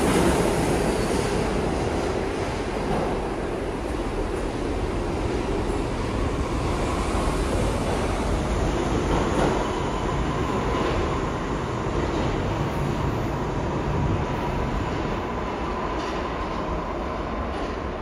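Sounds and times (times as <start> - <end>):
train wheels on rail: 0.0 - 18.0.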